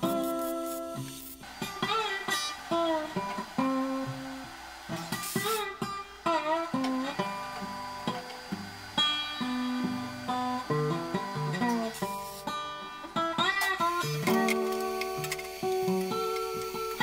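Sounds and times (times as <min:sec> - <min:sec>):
plucked acoustic guitar: 0:00.0 - 0:17.0.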